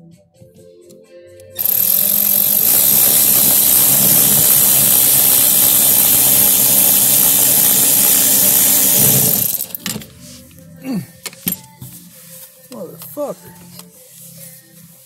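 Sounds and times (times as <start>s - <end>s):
power drill driving a screw: 1.6s - 9.8s.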